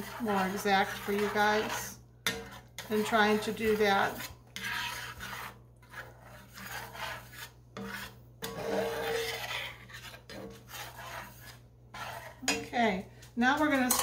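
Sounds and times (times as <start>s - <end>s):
utensil scraping in a skillet: 0.0s - 14.0s.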